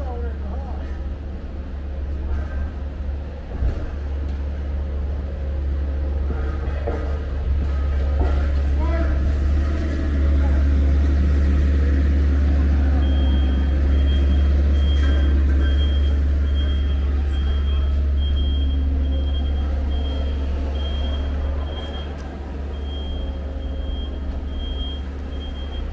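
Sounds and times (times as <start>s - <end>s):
steady low rumble: 0.0s - 25.9s.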